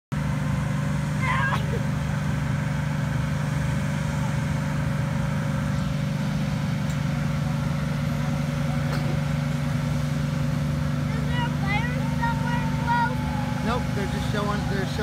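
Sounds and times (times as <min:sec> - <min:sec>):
boat engine droning: 0:00.1 - 0:15.0
faint higher hum: 0:00.2 - 0:15.0.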